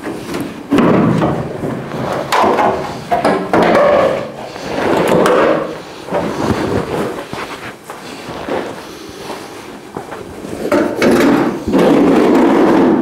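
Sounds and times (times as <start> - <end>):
sheet metal scraping and clattering: 0.0 - 13.0
sharp knocks: 0.7 - 4.4.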